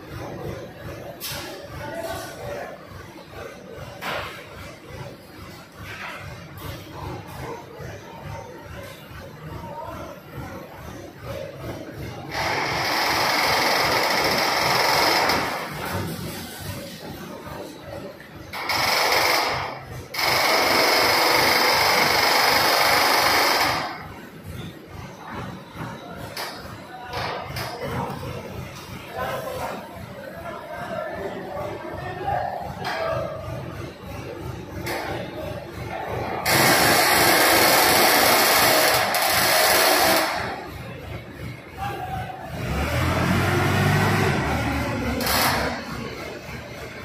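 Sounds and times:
loud mechanical whirring: 0:12.0 - 0:16.3, 0:18.5 - 0:24.9, 0:36.2 - 0:41.6, 0:42.5 - 0:47.0.

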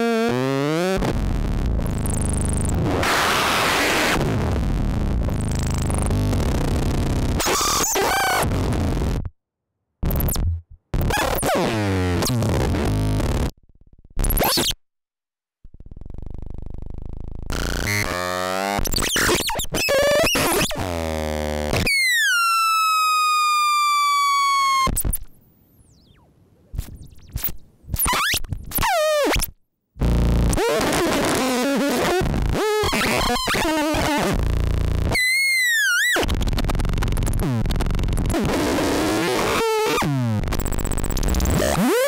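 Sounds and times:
harsh glitching electronic noise: 0:00.0 - 0:09.1.

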